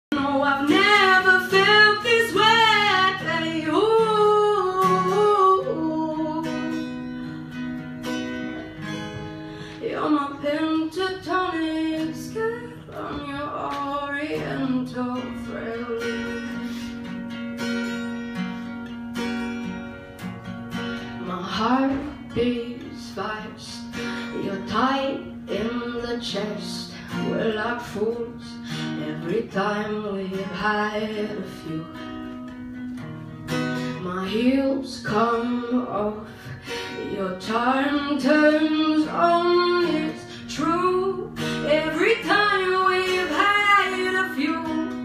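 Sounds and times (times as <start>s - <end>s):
person singing: 0.1s - 7.0s
acoustic guitar chords: 0.1s - 45.0s.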